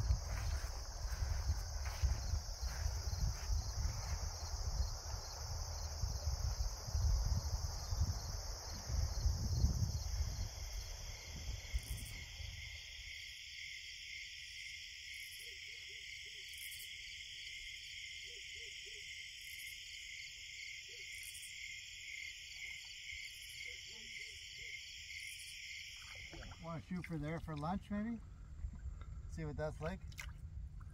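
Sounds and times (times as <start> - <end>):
low rumble on microphone: 0.0 - 12.5
high-pitched insect chorus: 0.0 - 28.2.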